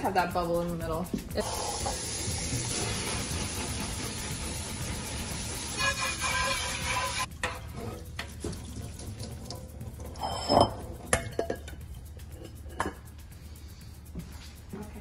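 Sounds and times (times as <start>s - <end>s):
tap water running into sink: 1.4s - 10.2s
metal colander knocking and clinking: 10.0s - 12.0s, 12.7s - 13.1s.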